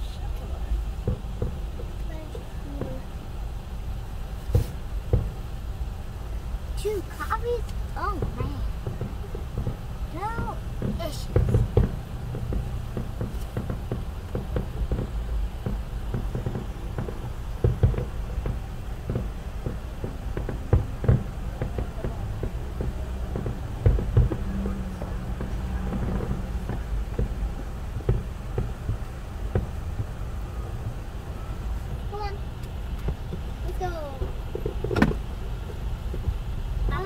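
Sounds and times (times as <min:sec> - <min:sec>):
car and traffic rumble: 0:00.0 - 0:37.0
muffled distant fireworks booms: 0:00.0 - 0:37.0.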